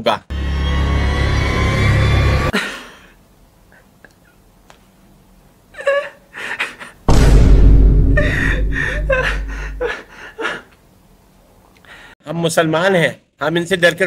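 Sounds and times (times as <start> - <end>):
man laughing heartily: 5.8 - 7.1, 8.2 - 10.6.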